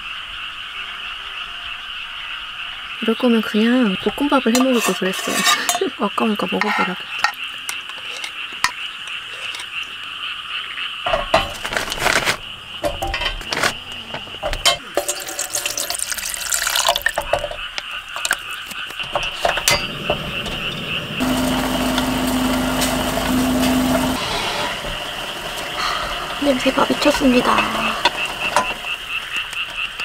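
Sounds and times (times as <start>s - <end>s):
wooden skewers clinking on metal: 4.5s - 6.0s, 11.1s - 20.4s
simmering pot and burner hiss: 14.1s - 30.0s.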